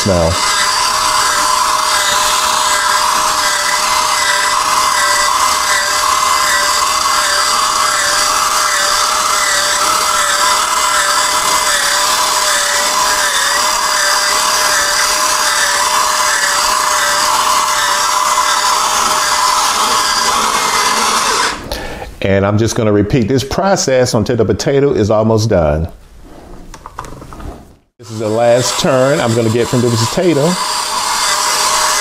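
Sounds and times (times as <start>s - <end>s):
potato peeler motor running: 0.0s - 21.7s, 28.0s - 32.0s
even hiss: 27.5s - 32.0s.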